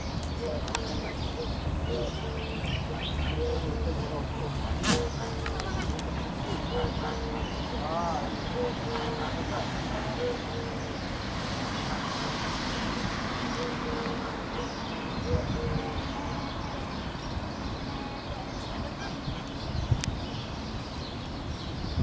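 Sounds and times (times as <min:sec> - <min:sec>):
doves cooing: 0:00.0 - 0:12.7, 0:13.4 - 0:16.8
outdoor background noise: 0:00.0 - 0:22.0.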